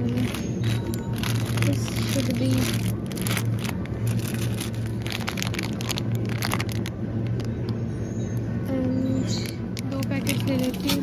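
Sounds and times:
plastic bag crinkling: 0:00.0 - 0:07.5
steady low hum: 0:00.0 - 0:11.0.

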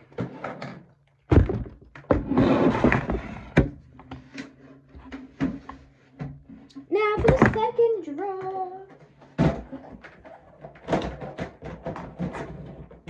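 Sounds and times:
toys clattering: 0:07.1 - 0:13.0.

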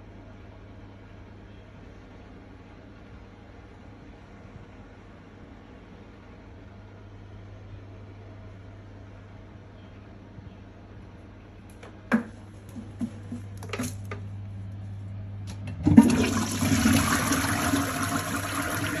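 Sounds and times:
toilet flushing: 0:15.7 - 0:19.0.

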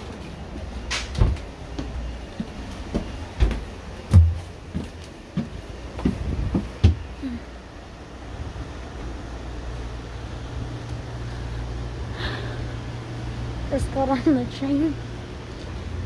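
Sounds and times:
low train hum: 0:00.0 - 0:16.0
footsteps thumping on stairs: 0:01.0 - 0:07.2.

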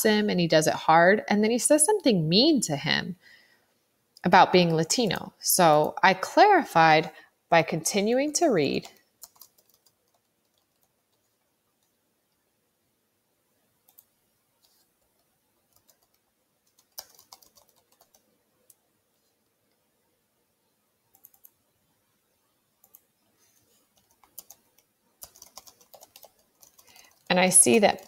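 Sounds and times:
computer keyboard keystrokes: 0:08.8 - 0:11.2, 0:15.7 - 0:18.2, 0:21.1 - 0:21.6, 0:24.0 - 0:27.3.

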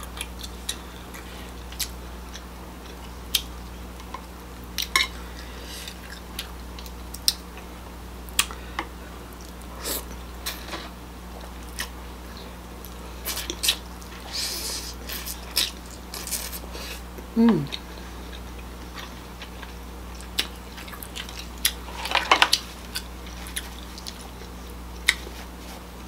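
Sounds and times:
low electrical hum: 0:00.0 - 0:26.0.

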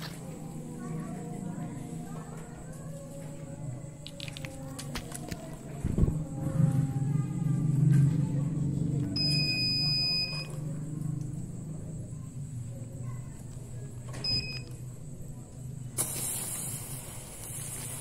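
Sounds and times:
steady low hum: 0:00.0 - 0:18.0
electronic two-tone beep: 0:14.2 - 0:14.7
firework fountains spraying hiss: 0:15.9 - 0:18.0.

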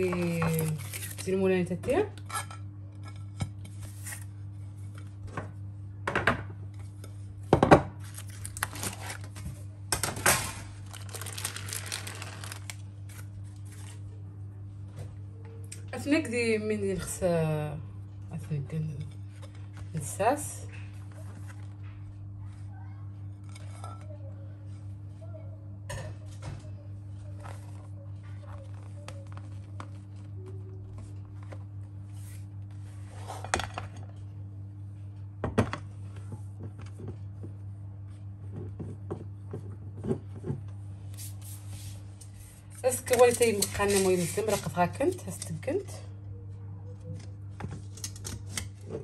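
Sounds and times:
baking paper peeled off: 0:08.0 - 0:09.4, 0:10.8 - 0:14.0, 0:42.9 - 0:45.2.

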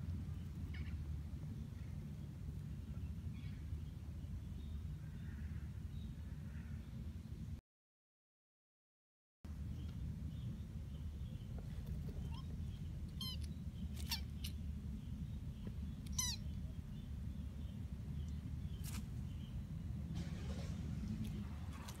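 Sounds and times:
kitten mewing: 0:13.1 - 0:14.6, 0:16.1 - 0:16.5.

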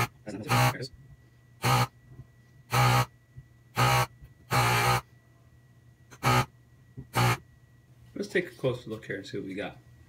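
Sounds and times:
desoldering gun vacuum pump buzzing: 0:00.0 - 0:00.9, 0:01.6 - 0:02.0, 0:02.7 - 0:03.1, 0:03.7 - 0:05.1, 0:06.1 - 0:07.4.

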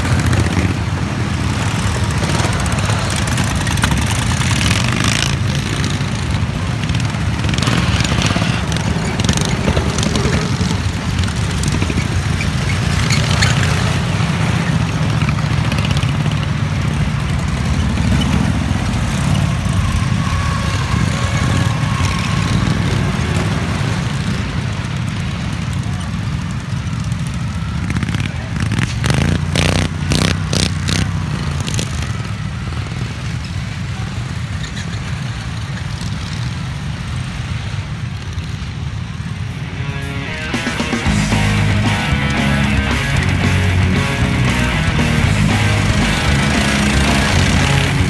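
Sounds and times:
lawn tractor engines droning: 0:00.0 - 0:48.0.

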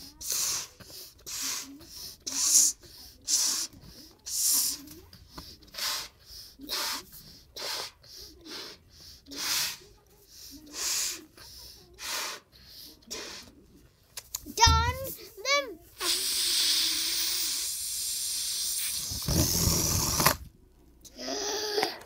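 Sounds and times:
child blowing up a balloon: 0:00.0 - 0:05.0, 0:05.6 - 0:10.0, 0:10.6 - 0:11.4, 0:12.0 - 0:13.5, 0:15.5 - 0:20.5
quick breaths drawn in: 0:00.0 - 0:13.6.

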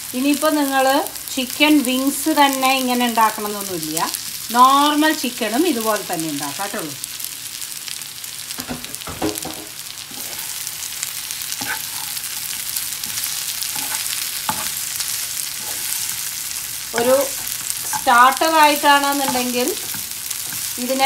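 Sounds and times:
chicken sizzling in a frying pan: 0:00.0 - 0:21.0
spatula scraping a pan: 0:10.0 - 0:10.7, 0:11.4 - 0:20.9.

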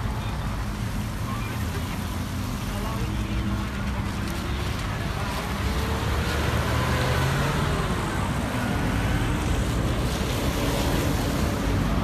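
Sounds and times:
car engines running: 0:00.0 - 0:12.0
tyres rolling on asphalt: 0:00.0 - 0:12.0.

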